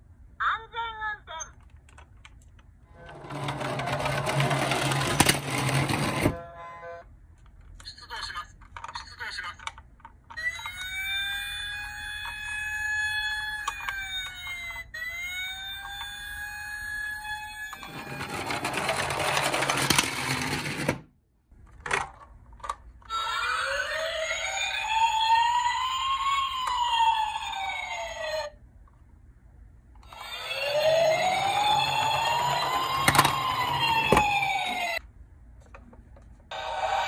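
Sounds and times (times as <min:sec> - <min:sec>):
toy police sirens wailing: 0:10.4 - 0:19.4, 0:23.1 - 0:28.6, 0:30.0 - 0:35.0, 0:36.5 - 0:37.0.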